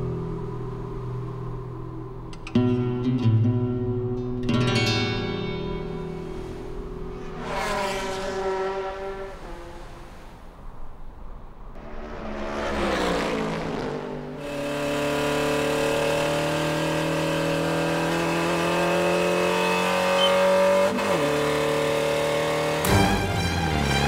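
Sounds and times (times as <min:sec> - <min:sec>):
car engine passing by: 0:06.2 - 0:10.8, 0:11.8 - 0:24.0.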